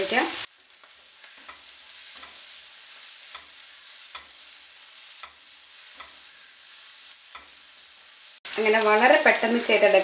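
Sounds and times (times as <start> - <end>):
food sizzling in a pan: 0.0 - 10.0
spatula scraping a pan: 0.7 - 8.4.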